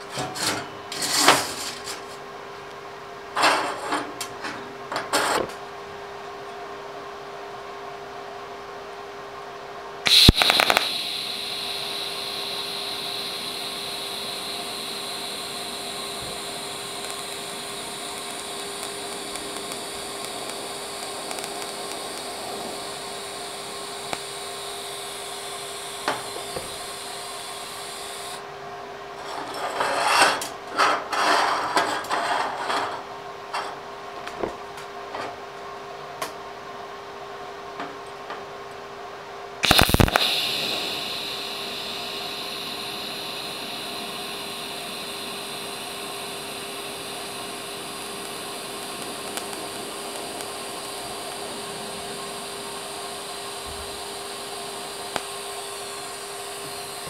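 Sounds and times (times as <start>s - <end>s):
welding arc crackling and hissing: 10.0s - 28.4s, 39.6s - 57.0s.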